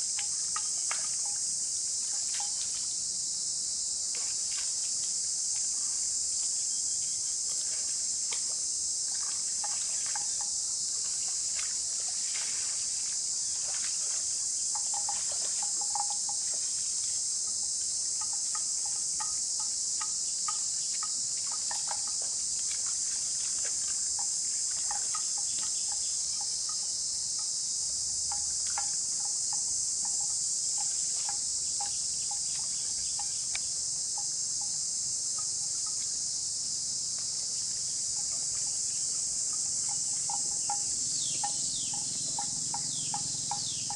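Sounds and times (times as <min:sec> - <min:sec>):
high-pitched insect drone: 0:00.0 - 0:08.1, 0:08.7 - 0:43.9.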